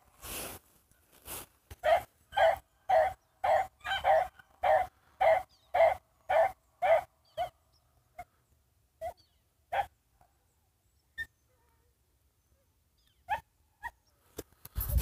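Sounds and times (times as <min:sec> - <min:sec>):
hound barking: 0:01.8 - 0:07.6, 0:09.0 - 0:10.0.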